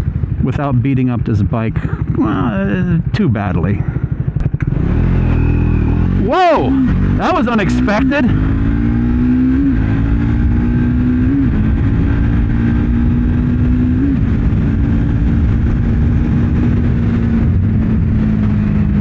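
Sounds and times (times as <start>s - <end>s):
motorcycle engine accelerating: 0.0s - 19.0s
wind noise on microphone: 8.7s - 19.0s.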